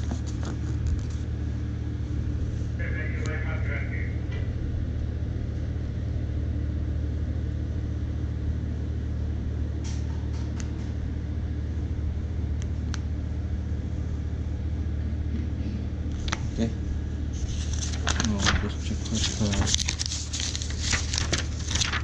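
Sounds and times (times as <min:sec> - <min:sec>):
paper rustling: 0:00.0 - 0:01.3, 0:17.3 - 0:22.0
low machinery hum: 0:00.0 - 0:22.0.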